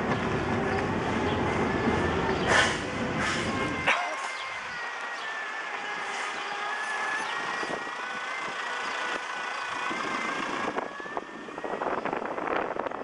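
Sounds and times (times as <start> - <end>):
truck idling: 0.0 - 13.0
wind buffeting microphone: 7.2 - 13.0.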